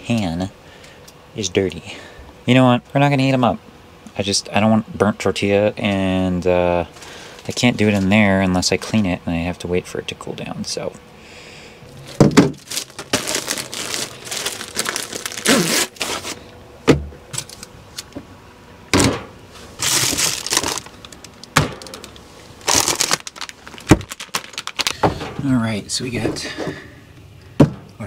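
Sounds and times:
plastic packaging crinkling: 0:11.9 - 0:16.4, 0:19.6 - 0:25.1
objects knocking when set down: 0:12.2 - 0:12.6.

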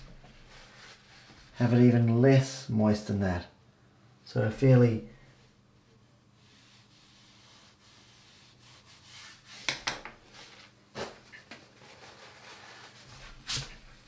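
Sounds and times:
brush rubbing on damp paper: 0:00.4 - 0:01.6, 0:05.8 - 0:10.7, 0:11.7 - 0:14.0.

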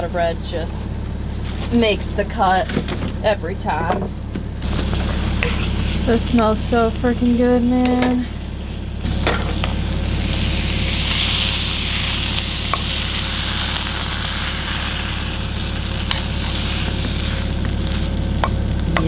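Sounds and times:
meatballs sizzling in a frying pan: 0:08.4 - 0:18.9.

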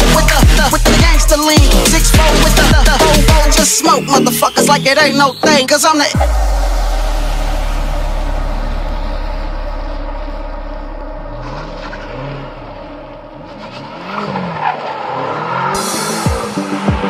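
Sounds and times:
car engine revving: 0:00.0 - 0:04.9, 0:06.0 - 0:17.0
deep music bass: 0:00.0 - 0:14.6, 0:15.4 - 0:17.0.

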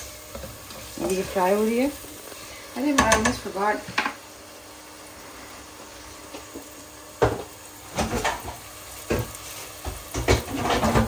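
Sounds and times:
onions sizzling in a pan: 0:00.0 - 0:11.0
kitchen things clattering: 0:07.2 - 0:11.0.

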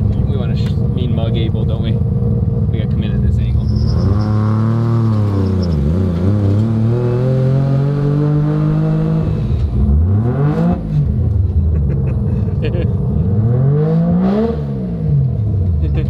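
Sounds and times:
rotary engine revving: 0:03.4 - 0:11.2.

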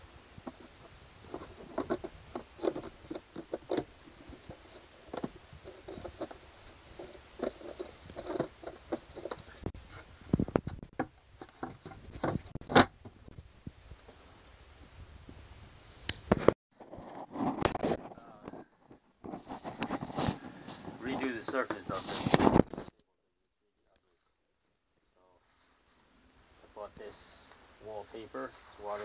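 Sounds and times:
clicks and knocks of handling: 0:01.3 - 0:06.4, 0:07.0 - 0:09.7.

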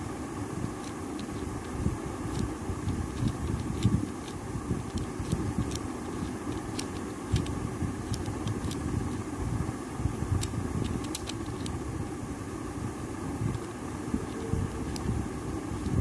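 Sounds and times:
low background rumble: 0:00.0 - 0:16.0
plastic puzzle tiles clicking: 0:03.2 - 0:09.2, 0:10.4 - 0:11.7.

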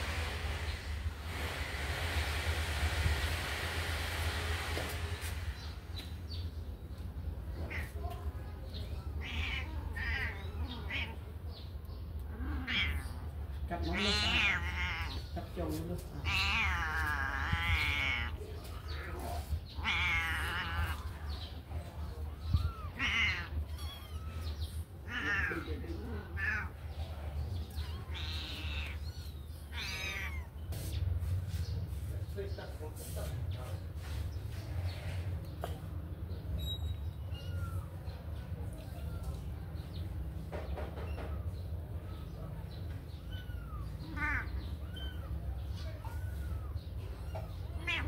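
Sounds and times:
kittens mewing: 0:07.4 - 0:11.5, 0:12.1 - 0:15.4, 0:16.0 - 0:31.0, 0:37.1 - 0:39.9, 0:41.0 - 0:48.0.

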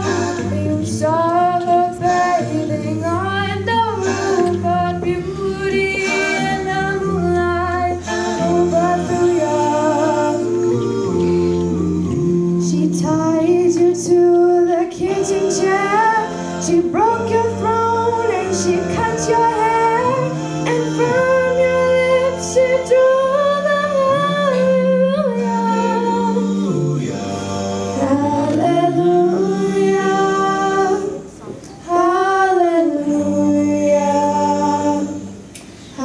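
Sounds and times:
backing music track: 0:00.0 - 0:36.0
girls singing into microphones: 0:00.0 - 0:36.0.

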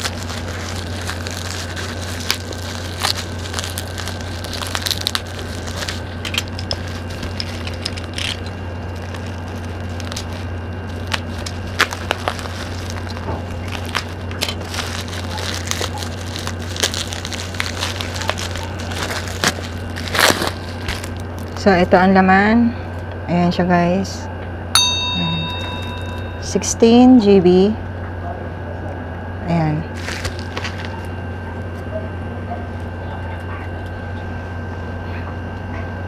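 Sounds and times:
plastic and bubble wrap crinkling: 0:00.0 - 0:21.9, 0:25.4 - 0:26.5, 0:29.9 - 0:31.9
steady low hum: 0:00.0 - 0:36.0.

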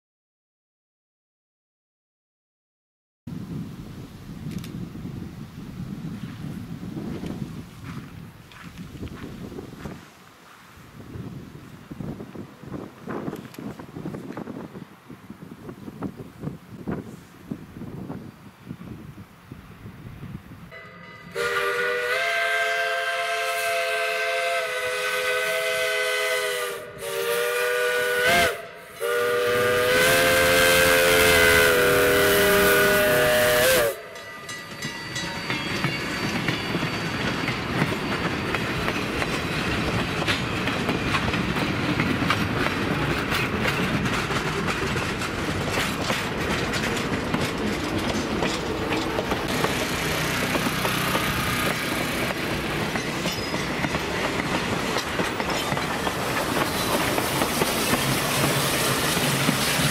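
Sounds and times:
steam locomotive chime whistle: 0:20.7 - 0:39.7, 0:49.4 - 0:54.5
train wheels clattering over rails: 0:34.2 - 0:59.9.

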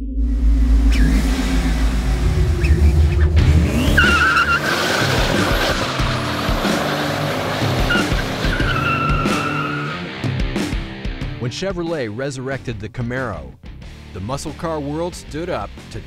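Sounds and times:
car engine revving: 0:00.0 - 0:11.0
tyres squealing: 0:03.8 - 0:10.0.

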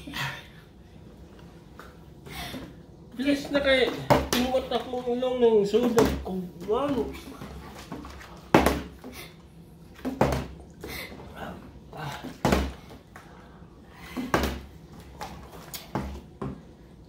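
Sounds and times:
plastic bottle thudding on wood: 0:08.5 - 0:09.0, 0:10.0 - 0:10.6, 0:12.4 - 0:12.8.

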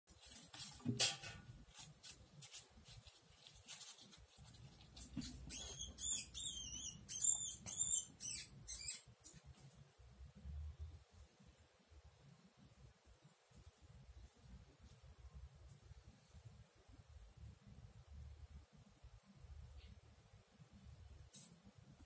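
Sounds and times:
rustling: 0:00.1 - 0:06.4
baby rat squeaking: 0:05.2 - 0:09.3.

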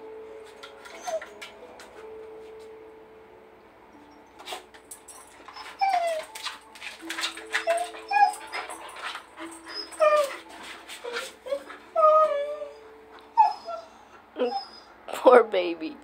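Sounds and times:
dog whimpering: 0:00.8 - 0:01.5, 0:05.2 - 0:15.0
dog paws scrabbling: 0:04.4 - 0:12.3.

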